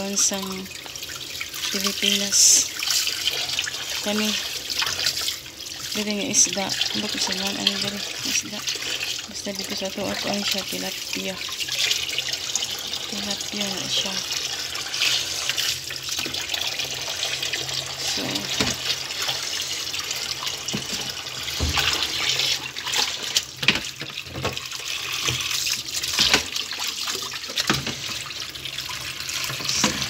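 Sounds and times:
tap running into water: 0:14.3 - 0:30.0.

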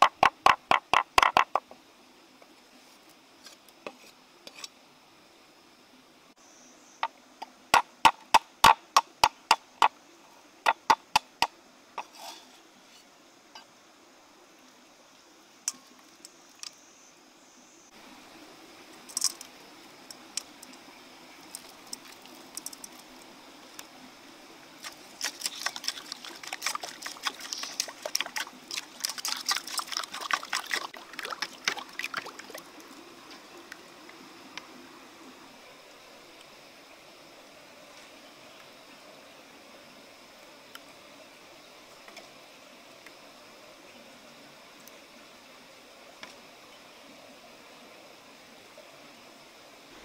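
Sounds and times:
wet sloshing and crackling: 0:24.8 - 0:33.0.

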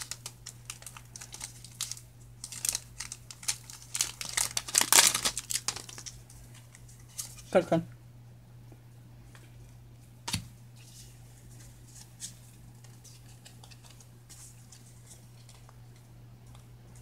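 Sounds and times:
trading cards rustling and clicking: 0:00.0 - 0:07.5, 0:10.9 - 0:16.7
steady low hum: 0:00.0 - 0:17.0.

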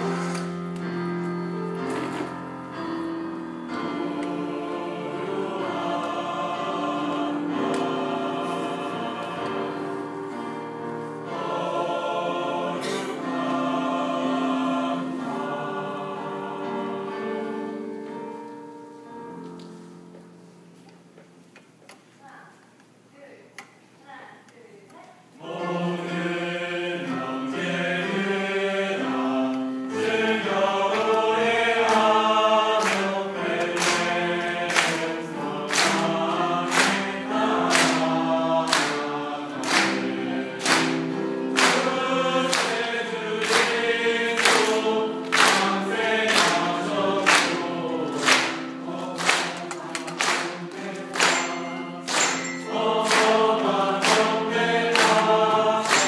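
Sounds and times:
choir singing: 0:00.0 - 0:18.8, 0:25.4 - 0:56.0
handclaps: 0:32.8 - 0:34.1, 0:34.7 - 0:35.1, 0:35.7 - 0:36.1, 0:36.7 - 0:37.1, 0:37.7 - 0:38.1, 0:38.7 - 0:40.0, 0:40.6 - 0:41.0, 0:41.6 - 0:41.9, 0:42.5 - 0:42.8, 0:43.4 - 0:43.8, 0:44.4 - 0:46.7, 0:47.3 - 0:47.6, 0:48.2 - 0:48.6, 0:49.2 - 0:53.4, 0:54.0 - 0:55.2.

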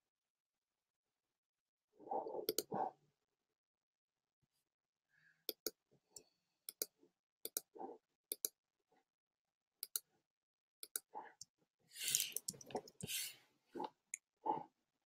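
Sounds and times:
computer mouse clicks: 0:02.4 - 0:02.8, 0:07.5 - 0:07.7, 0:08.3 - 0:08.5, 0:09.8 - 0:10.1, 0:10.8 - 0:11.1, 0:12.0 - 0:13.9.

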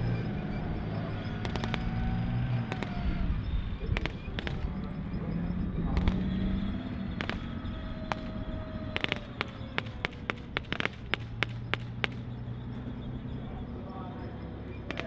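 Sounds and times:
armoured vehicle engines rumbling: 0:00.0 - 0:15.0
gunshots: 0:01.2 - 0:05.0, 0:05.8 - 0:12.4.

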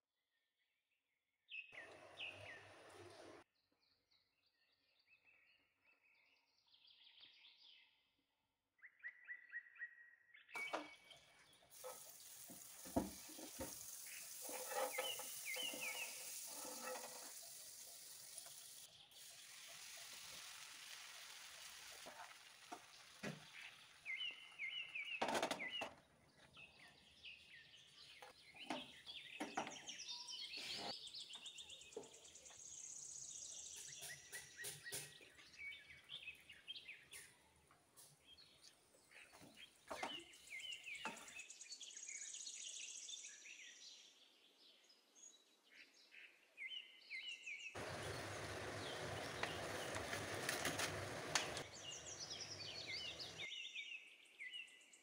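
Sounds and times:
butter sizzling in pan: 0:10.6 - 0:24.8, 0:47.8 - 0:53.5
utensils tapping pan: 0:11.8 - 0:17.6
faint bird chirps: 0:13.7 - 0:20.6.

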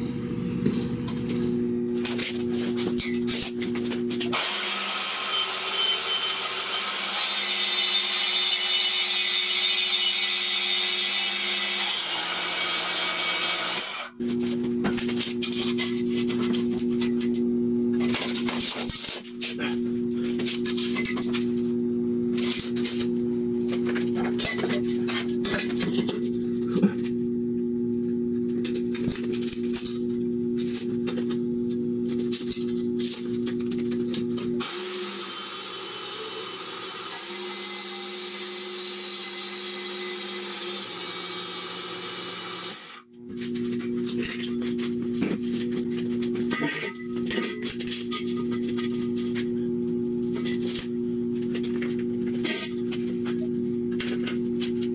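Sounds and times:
band saw cutting steel: 0:04.3 - 0:14.2, 0:34.6 - 0:43.1.

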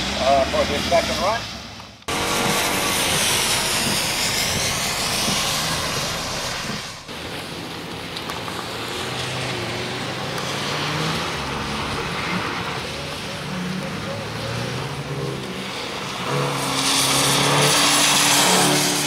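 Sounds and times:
rain hiss: 0:00.0 - 0:19.0
tyres hissing through water: 0:00.0 - 0:19.0
car engine running: 0:02.0 - 0:15.6.

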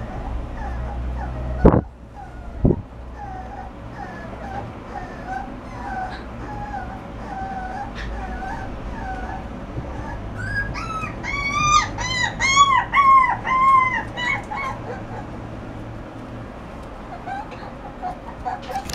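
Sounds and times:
puppy whimpering: 0:00.0 - 0:15.4, 0:17.1 - 0:18.9.

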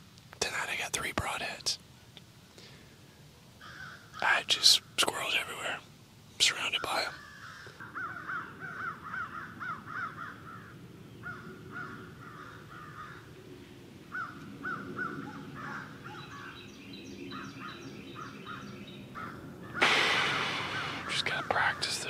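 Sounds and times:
loud rustling: 0:19.8 - 0:21.3.

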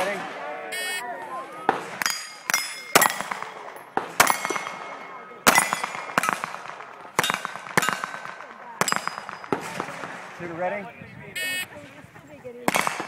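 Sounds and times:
handgun shots: 0:01.7 - 0:04.8, 0:05.5 - 0:10.0, 0:12.7 - 0:13.0
bullets clanging on steel plates: 0:02.0 - 0:04.8, 0:05.5 - 0:06.5, 0:07.2 - 0:09.6.

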